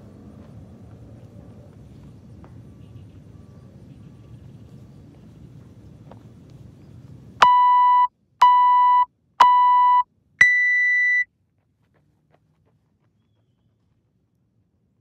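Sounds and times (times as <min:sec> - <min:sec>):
short timer beeps: 0:07.4 - 0:11.2
long high-pitched beep: 0:07.4 - 0:11.3.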